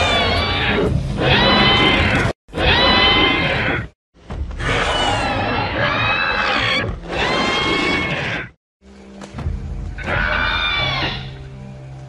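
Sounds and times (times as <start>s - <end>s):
high screeching creature call: 0.0s - 3.9s, 4.6s - 8.5s, 10.0s - 11.4s.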